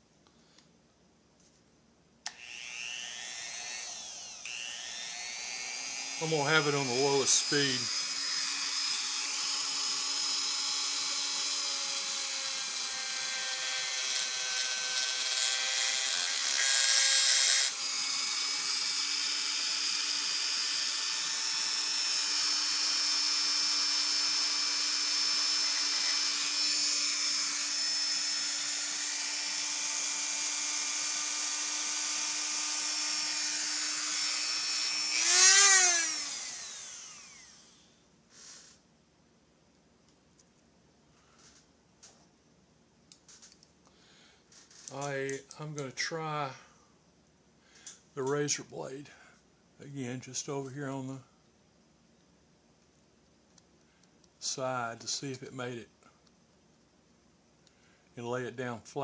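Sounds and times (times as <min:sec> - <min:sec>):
rotary tool grinding whine: 0:02.3 - 0:38.8.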